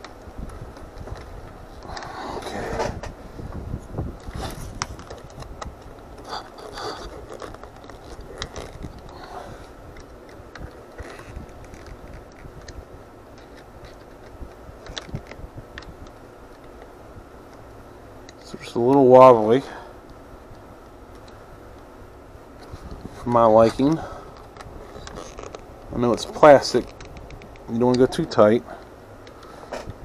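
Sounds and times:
plastic parts clicking and scraping: 4.2 - 17.6, 22.6 - 30.0.

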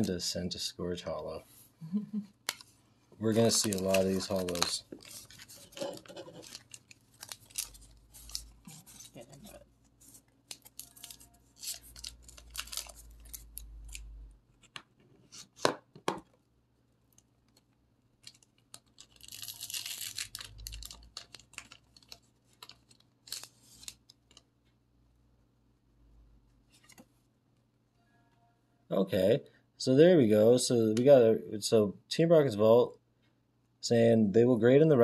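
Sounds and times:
foil wrapper crinkling: 2.5 - 14.2, 17.1 - 24.4
scissors cutting foil: 10.5 - 14.1, 18.7 - 24.1.

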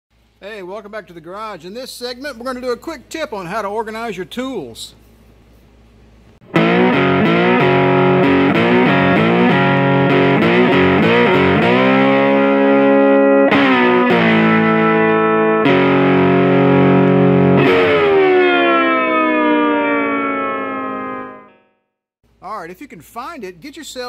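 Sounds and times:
distorted electric guitar chords: 6.4 - 21.8.

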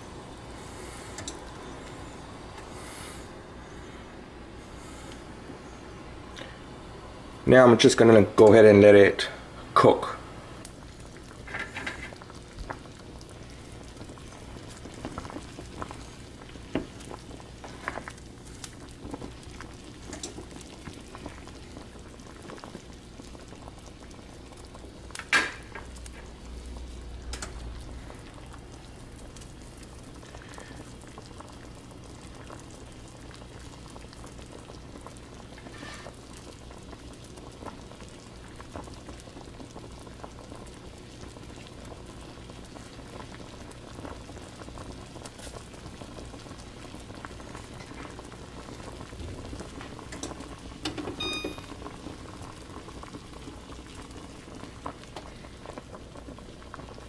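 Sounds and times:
water boiling in a saucepan: 0.0 - 57.0.

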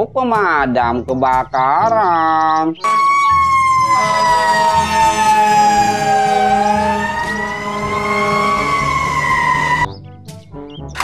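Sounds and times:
fire engine siren wailing: 2.8 - 9.9.

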